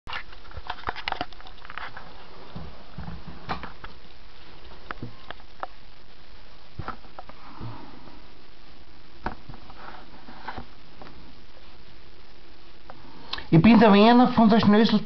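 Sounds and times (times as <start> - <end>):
steady background hiss: 0.1 - 15.0
soft rustles: 9.4 - 12.0.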